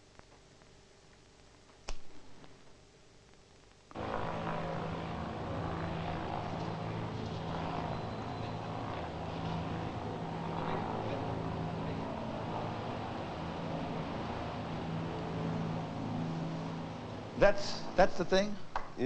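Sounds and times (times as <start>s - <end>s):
propeller engines humming overhead: 3.9s - 19.0s.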